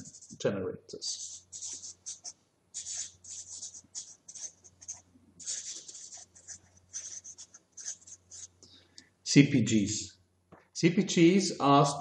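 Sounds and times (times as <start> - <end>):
marker pen scratching on paper: 0.0 - 0.4, 1.0 - 8.6.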